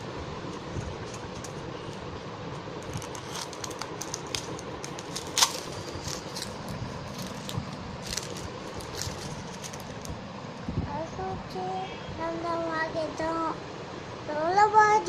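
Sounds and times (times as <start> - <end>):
steady background noise: 0.0 - 15.0
wrapper crinkling: 2.8 - 10.2.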